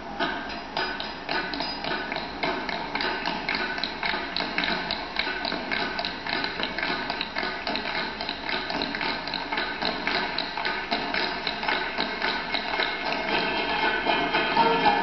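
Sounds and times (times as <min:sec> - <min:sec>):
tap shoes on wooden stage: 0:00.2 - 0:15.0
accompanying music: 0:02.0 - 0:15.0.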